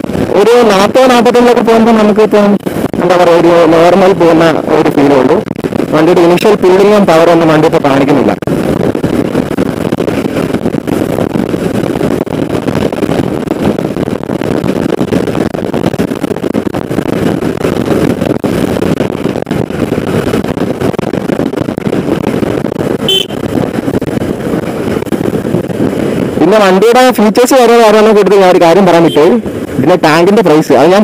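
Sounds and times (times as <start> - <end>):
wind rush on microphone: 0.0 - 31.0
motorcycle engine cruising: 8.4 - 26.5
short horn beep: 23.1 - 23.4.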